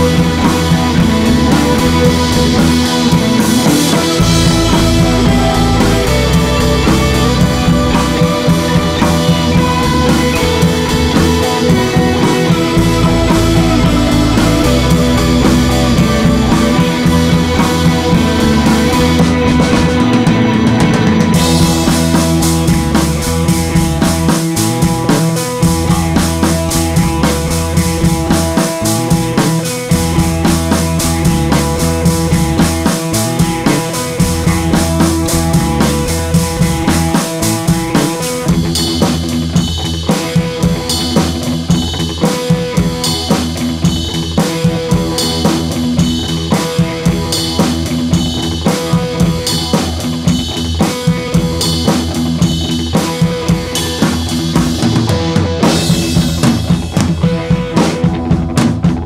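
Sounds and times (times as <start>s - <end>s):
background music with drum beat: 0.0s - 59.0s.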